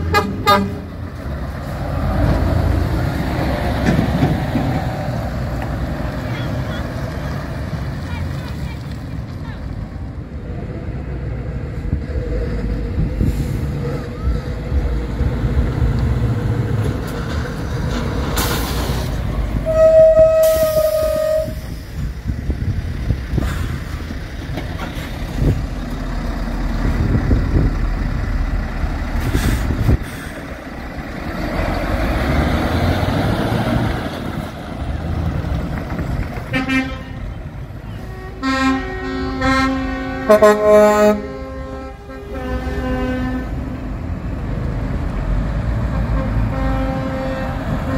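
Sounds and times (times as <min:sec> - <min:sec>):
truck horn: 0:00.0 - 0:01.0, 0:19.6 - 0:21.6, 0:36.5 - 0:43.8, 0:45.8 - 0:47.9
diesel truck engines rumbling: 0:00.0 - 0:47.9
horn short toots: 0:19.6 - 0:21.6.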